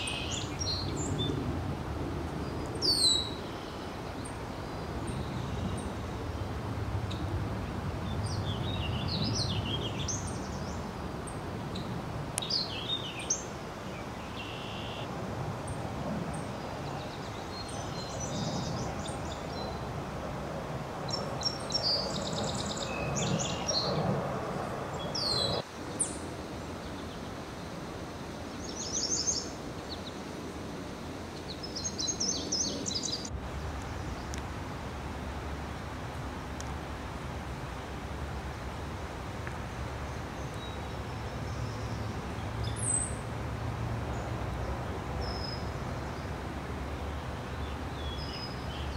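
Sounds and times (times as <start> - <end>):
steady background noise: 0.0 - 48.9
small birds chirping and trilling: 2.4 - 6.5, 21.1 - 24.1, 24.9 - 27.3.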